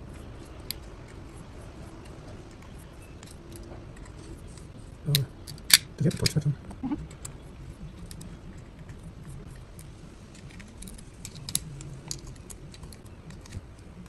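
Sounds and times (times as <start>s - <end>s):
steel parts clicking and clinking: 3.0s - 6.5s, 10.3s - 14.0s.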